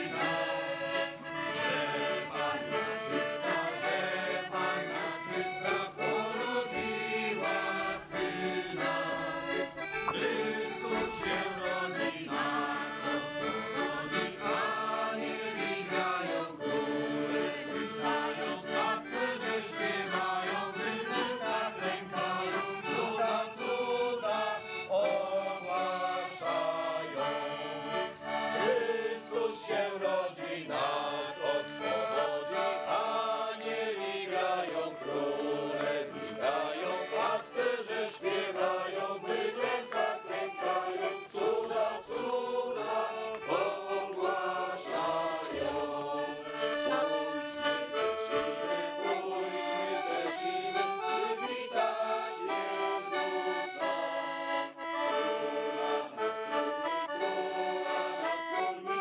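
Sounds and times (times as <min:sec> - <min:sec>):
accordion folk melody: 0:00.0 - 0:59.0
group of voices singing: 0:00.0 - 0:59.0.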